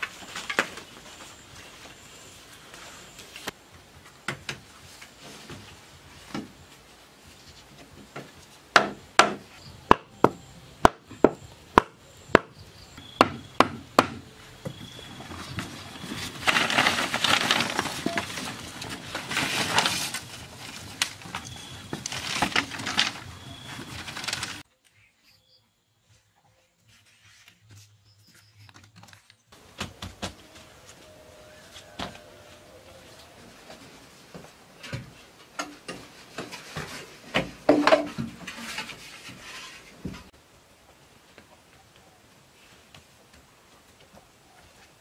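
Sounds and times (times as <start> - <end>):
sharp wooden knocks: 8.7 - 12.5, 13.2 - 14.2
rough rustling: 15.0 - 24.7.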